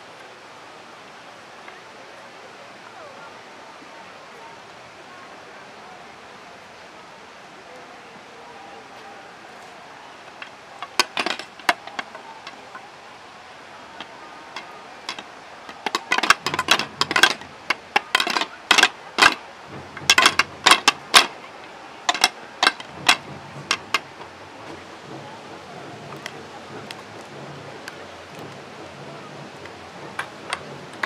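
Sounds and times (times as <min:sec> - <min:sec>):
wooden staffs knocking on paving: 0:14.6 - 0:21.4.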